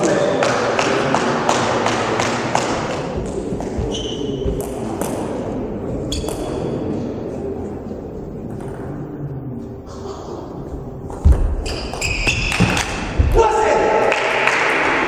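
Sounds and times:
murmur of hall: 0:00.0 - 0:15.0
high-pitched squeaks: 0:11.6 - 0:12.8.

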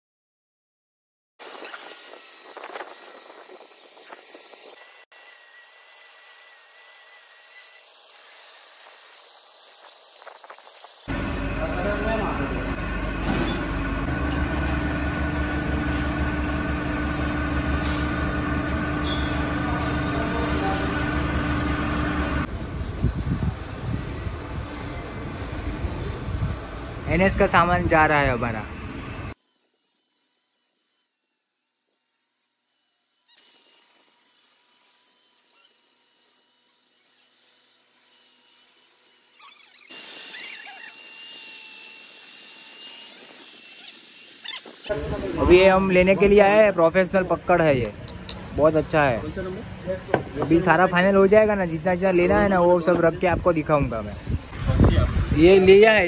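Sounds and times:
angle grinder cutting steel: 0:01.4 - 0:49.5
spray booth machine drone: 0:11.1 - 0:29.4.

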